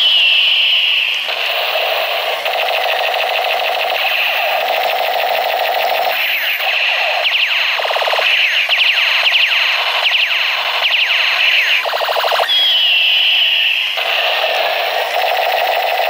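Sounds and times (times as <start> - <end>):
steady high beep: 0.0 - 1.2, 11.0 - 14.0.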